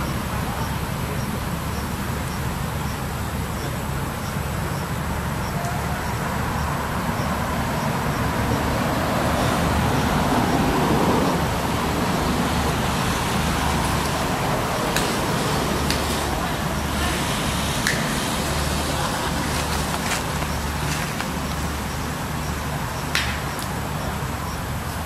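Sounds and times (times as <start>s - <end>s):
road traffic rumble: 0.0s - 25.0s
vehicle passing: 5.0s - 25.0s.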